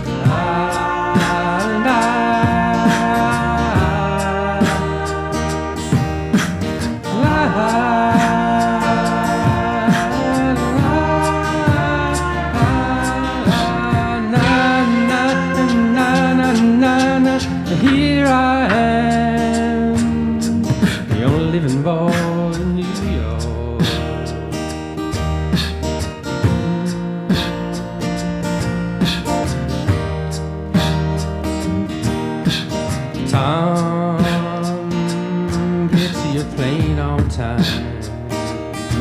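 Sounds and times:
acoustic guitar strumming: 0:00.0 - 0:39.0
person singing wordless lines: 0:00.0 - 0:39.0.

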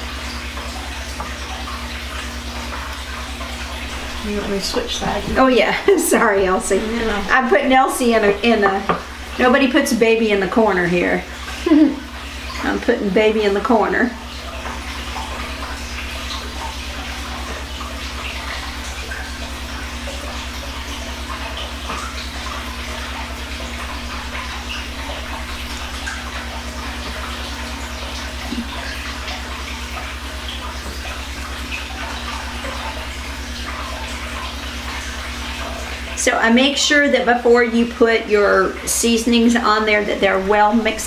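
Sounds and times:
low hum: 0:03.0 - 0:12.3.

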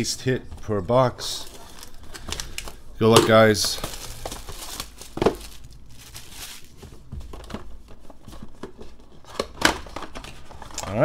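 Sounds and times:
plastic wrap crinkling and tearing: 0:01.4 - 0:07.1.

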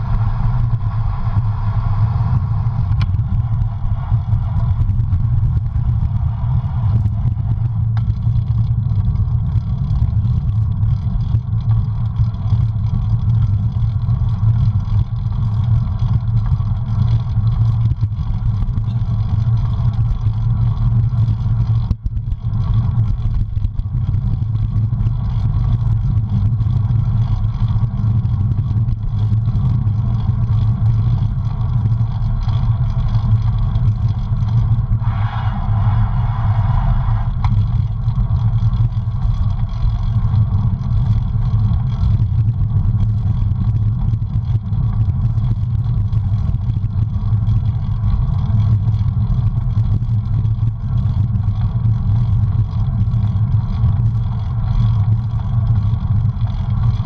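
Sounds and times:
wind buffeting microphone: 0:00.0 - 0:11.6, 0:32.5 - 0:42.8
tyre and road noise: 0:00.0 - 0:57.0.

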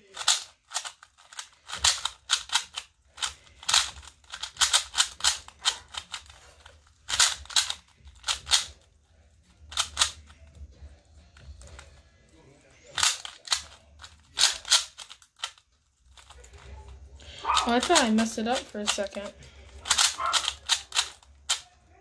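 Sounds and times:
puzzle cube clicking as turned: 0:00.1 - 0:08.9, 0:09.6 - 0:10.3, 0:12.9 - 0:16.4, 0:17.4 - 0:21.7.

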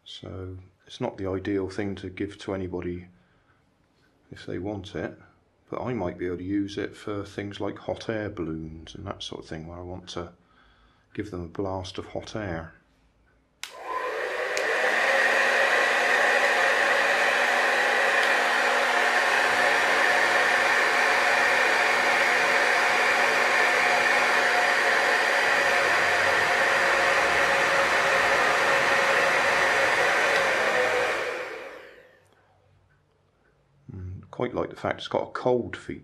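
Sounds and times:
hair dryer blowing: 0:13.6 - 0:32.2.

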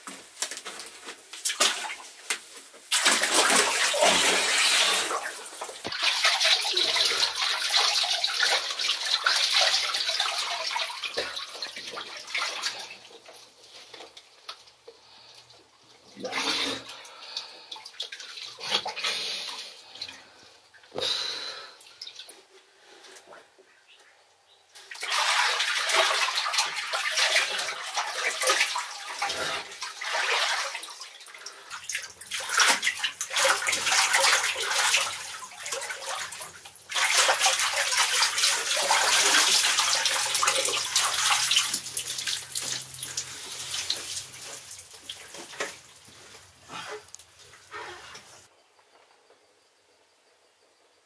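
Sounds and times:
water splashing and sloshing: 0:00.1 - 0:20.2, 0:24.8 - 0:48.5.

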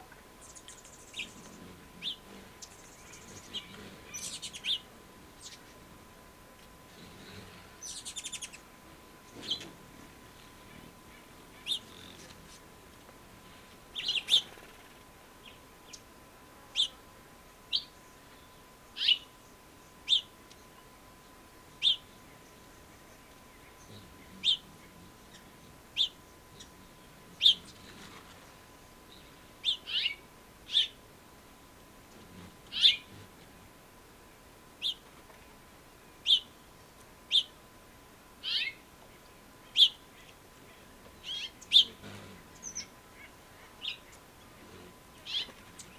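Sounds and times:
songbird chirping: 0:00.0 - 0:33.6, 0:34.2 - 0:45.9.

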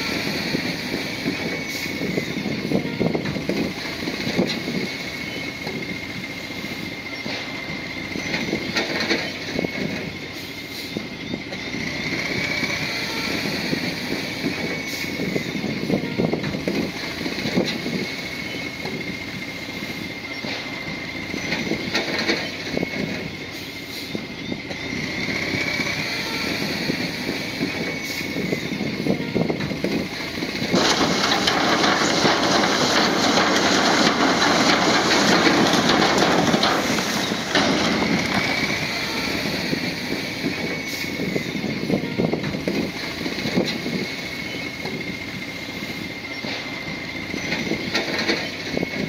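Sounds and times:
bulldozer diesel engine whine: 0:00.0 - 0:49.0
loud rushing grinding noise: 0:24.8 - 0:49.0.

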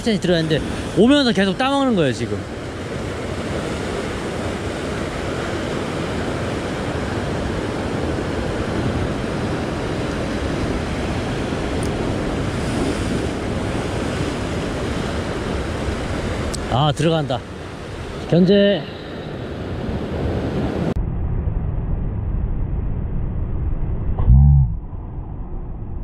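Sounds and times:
surf breaking over rocks: 0:00.0 - 0:18.2.

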